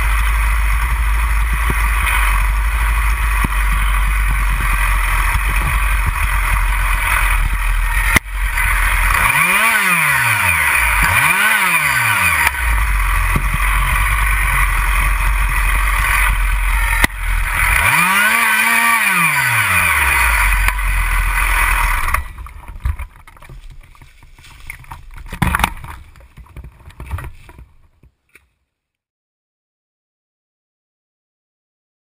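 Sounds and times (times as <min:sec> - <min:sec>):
chainsaw running at high revs: 0:00.0 - 0:23.1
clicks and knocks: 0:22.1 - 0:28.5.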